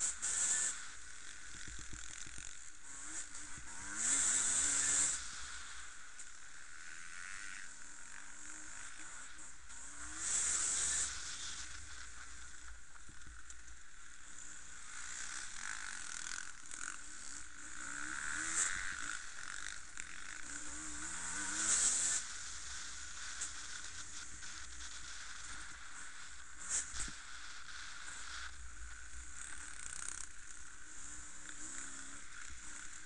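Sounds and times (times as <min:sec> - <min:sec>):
distant motorcycles revving: 0:00.0 - 0:33.0.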